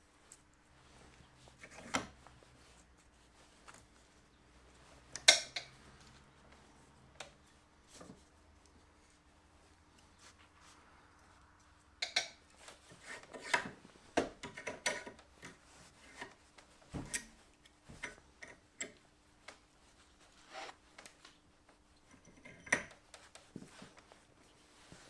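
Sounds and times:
metal tools clicking and tapping: 5.2 - 5.8, 12.0 - 12.6, 14.3 - 15.6, 22.0 - 23.3.

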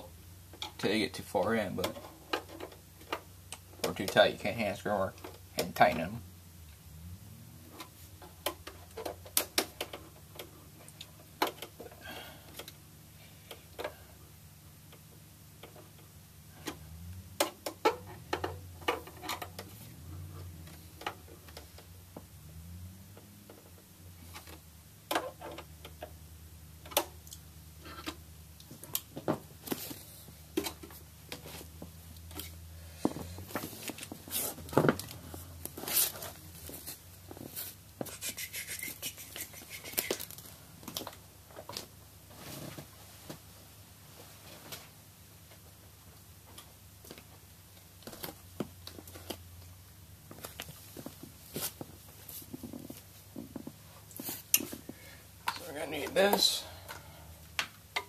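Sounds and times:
small metal clicks and knocks: 1.8 - 4.3, 15.0 - 19.8.

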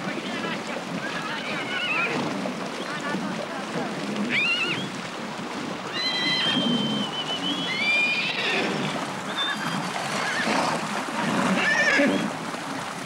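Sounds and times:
water splashing: 0.0 - 13.0
horses whinnying: 1.1 - 3.1, 4.0 - 5.1, 5.8 - 12.4.

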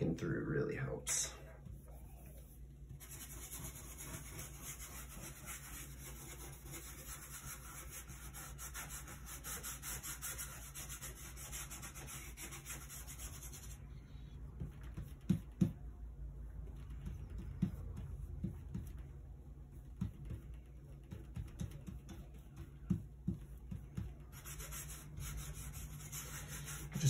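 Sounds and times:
brush scrubbing paint onto panel: 1.6 - 13.9, 19.7 - 27.0.

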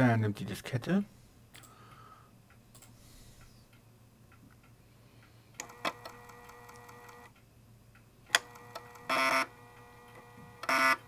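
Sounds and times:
floppy disk spinning hum: 5.6 - 7.3, 8.3 - 11.0.

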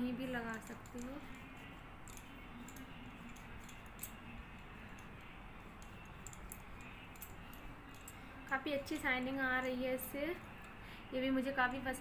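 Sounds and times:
fingers rubbing with light clicks: 0.3 - 8.6.

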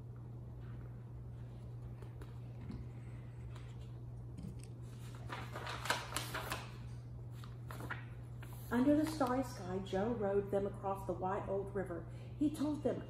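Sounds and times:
paper sheets rustling: 4.8 - 9.6.

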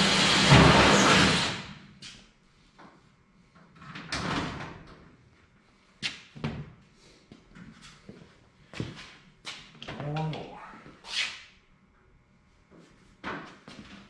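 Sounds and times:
power tool stopping: 0.0 - 1.7.

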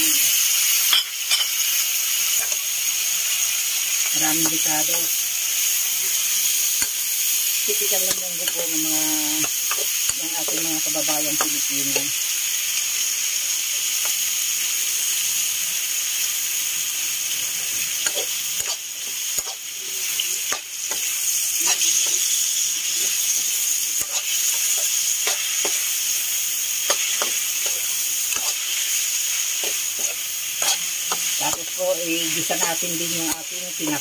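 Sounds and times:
food sizzling in hot oil: 0.0 - 34.0
metal ladle scraping wok: 26.8 - 31.7.

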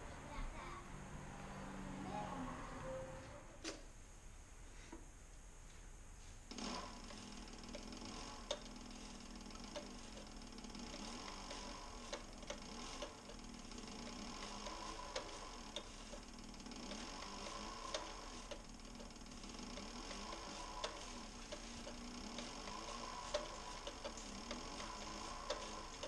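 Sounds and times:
faint motor hum: 0.0 - 26.0
sewing machine needle ticking: 6.5 - 26.0.

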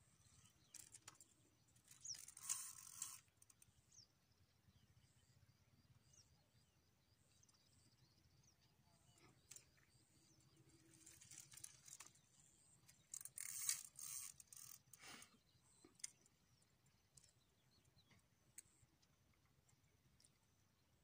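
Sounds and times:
faint clicks: 12.8 - 20.4.

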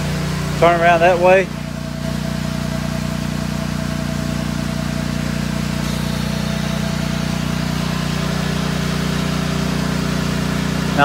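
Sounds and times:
pump engine running: 0.0 - 11.0
water spraying from nozzle: 0.0 - 11.0.

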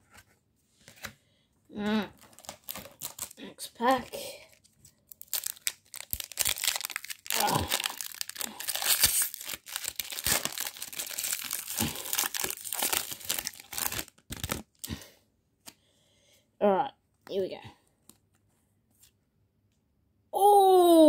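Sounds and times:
plastic wrapper crinkling and tearing: 2.0 - 15.0.

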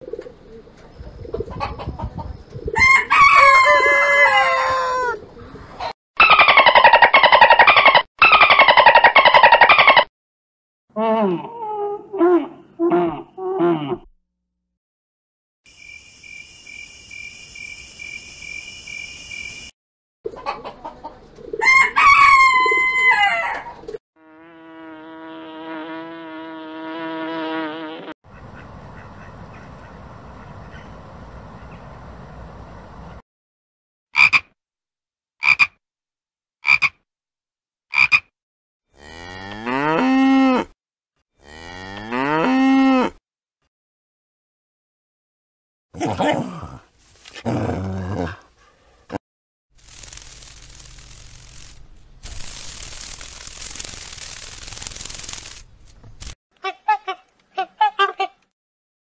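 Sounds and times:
cattle mooing: 41.4 - 43.1.

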